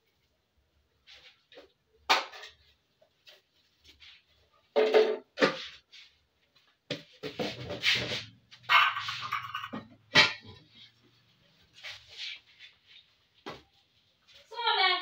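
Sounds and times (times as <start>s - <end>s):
metal pots knocking and clattering: 4.6s - 5.7s, 8.7s - 10.9s.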